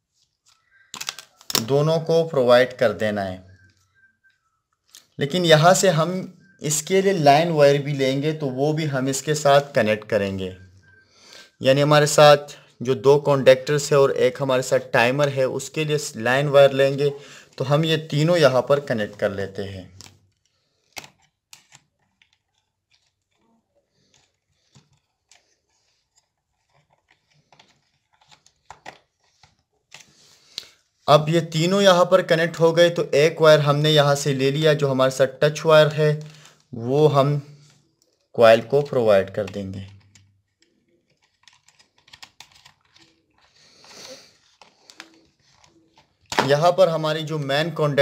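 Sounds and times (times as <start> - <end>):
wires clicking and rustling: 20.0 - 30.2, 39.3 - 47.6.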